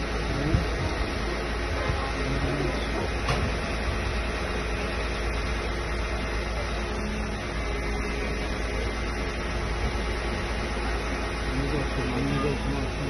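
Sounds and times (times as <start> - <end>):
fire truck engine running: 0.0 - 13.0.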